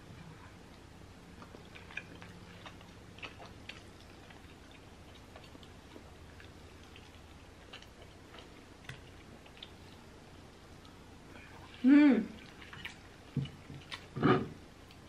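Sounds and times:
chewing mouth sounds: 0.7s - 10.1s.

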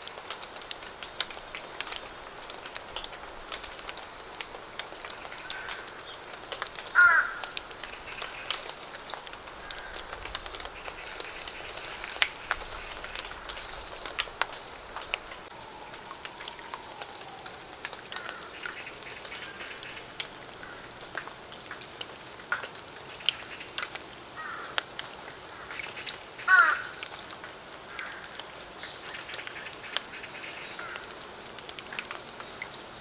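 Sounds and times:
rain drops splashing: 0.0s - 33.0s
bird calling: 6.9s - 20.9s.

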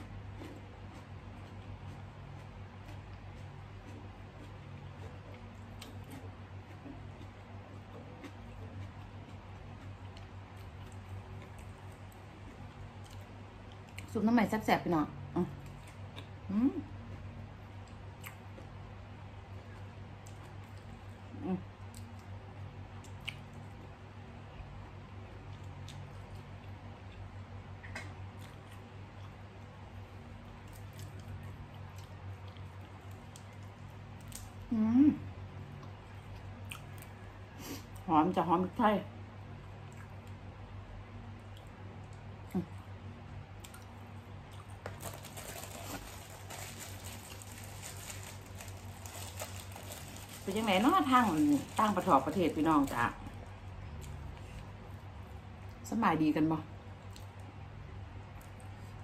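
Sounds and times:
steady low hum: 0.0s - 59.0s
chewing with wet mouth clicks: 0.3s - 14.1s, 15.6s - 16.4s, 17.8s - 18.4s, 23.0s - 23.6s, 25.4s - 29.5s, 30.6s - 34.5s, 35.8s - 37.1s, 39.8s - 40.4s, 41.4s - 42.8s, 43.6s - 44.8s, 57.0s - 57.5s
wet squishy eating noises: 43.6s - 54.9s.

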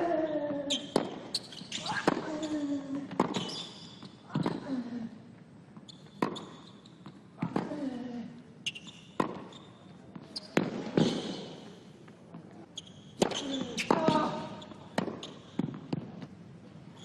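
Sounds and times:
shoes squeaking on court: 0.7s - 4.6s, 5.8s - 7.6s, 8.6s - 11.8s, 12.8s - 15.9s
tennis ball struck by rackets: 0.9s - 1.3s, 3.1s - 3.5s, 9.2s - 9.5s.

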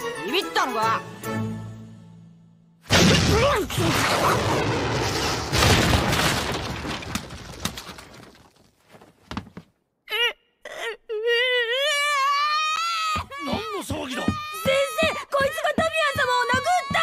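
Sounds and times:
cartoon punch impact: 2.9s - 6.4s
clattering crash into bin: 5.5s - 8.6s
boy whimpering: 10.1s - 13.8s.

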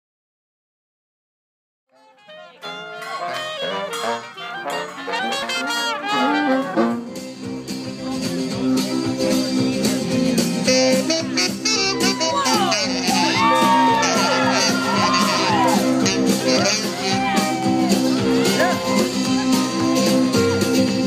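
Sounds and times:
trumpet melody: 1.9s - 7.3s, 10.6s - 21.0s.

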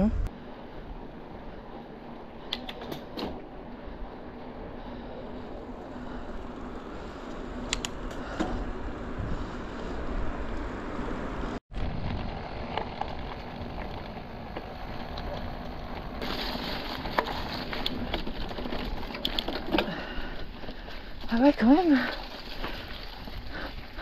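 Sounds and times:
bike clicks and rattles: 2.4s - 3.6s, 5.3s - 8.8s, 11.8s - 21.3s, 22.0s - 24.0s
bike tyres rolling on dirt: 3.4s - 24.0s.

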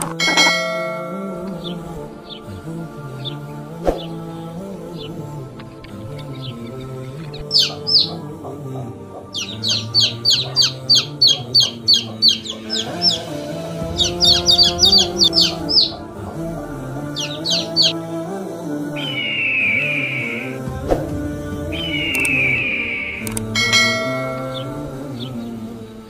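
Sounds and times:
background music: 0.0s - 26.0s
chicks peeping: 5.9s - 16.1s, 17.1s - 18.0s.

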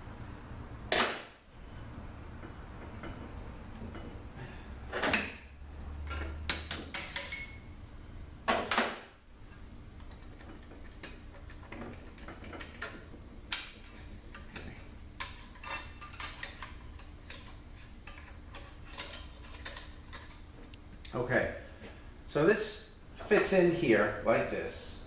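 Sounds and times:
metal clicks and clinks: 6.0s - 7.6s.

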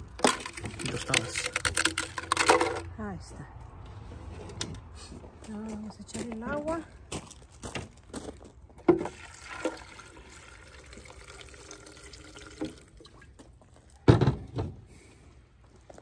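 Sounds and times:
water pouring into blender jar: 9.0s - 13.2s
thump: 14.1s - 14.8s.

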